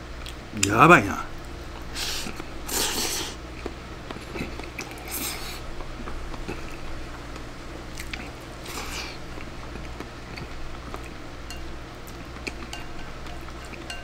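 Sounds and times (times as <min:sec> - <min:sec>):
person chewing: 0:02.0 - 0:05.6, 0:07.9 - 0:11.2, 0:12.0 - 0:14.0.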